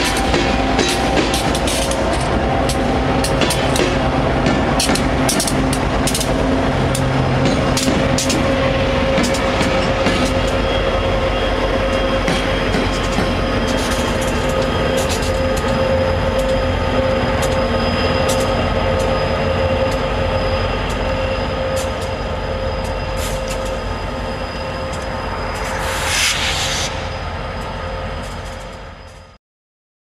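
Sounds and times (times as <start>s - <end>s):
train wheels rolling on rails: 0.0s - 29.4s
wheel squeal: 7.1s - 29.4s
hiss: 25.5s - 27.7s.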